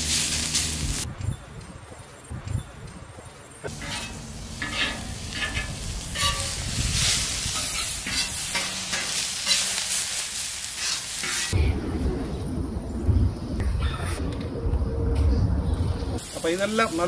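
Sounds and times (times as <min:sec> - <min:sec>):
vegetables sizzling in hot oil: 0:00.0 - 0:01.0, 0:03.7 - 0:11.6, 0:16.2 - 0:17.0
metal spatula scraping griddle: 0:03.7 - 0:10.0, 0:10.8 - 0:11.6.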